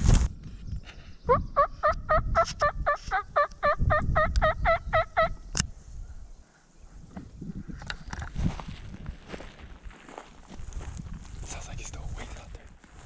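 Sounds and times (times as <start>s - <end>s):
turkey yelping: 1.3s - 5.4s
footsteps swishing through dry grass: 8.3s - 13.0s.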